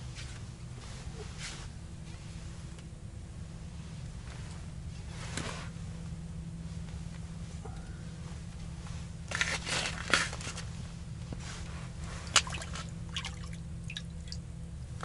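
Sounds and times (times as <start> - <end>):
water splashing: 12.2 - 14.4.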